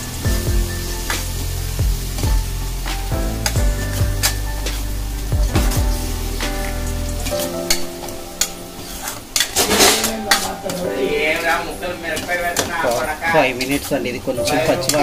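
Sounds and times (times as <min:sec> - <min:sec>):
background music: 0:00.0 - 0:15.0
masala sizzling in a pan: 0:00.0 - 0:15.0
spatula scraping a pan: 0:05.8 - 0:15.0.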